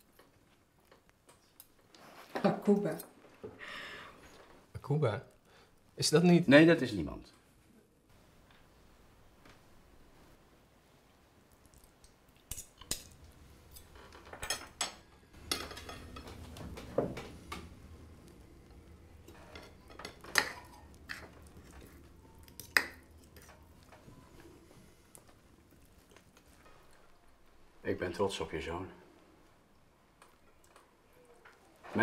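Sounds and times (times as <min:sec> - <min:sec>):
cutlery clinking on plates: 0:14.2 - 0:17.7.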